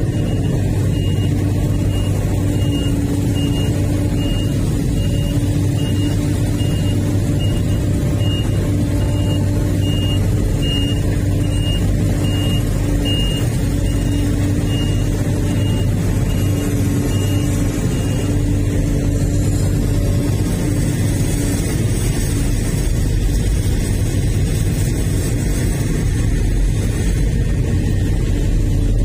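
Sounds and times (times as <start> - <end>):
high warning beep: 0.0 - 19.5
excavator diesel engine running: 0.0 - 29.0.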